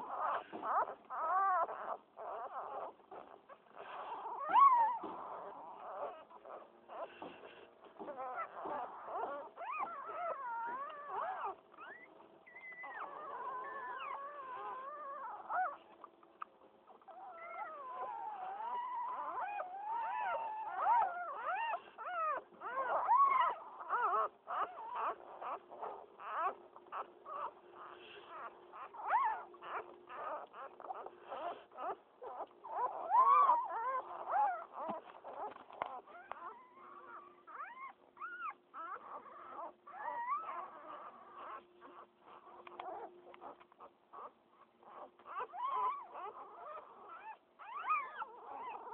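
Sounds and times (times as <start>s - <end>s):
puppies squealing and whimpering: 0.0s - 48.9s.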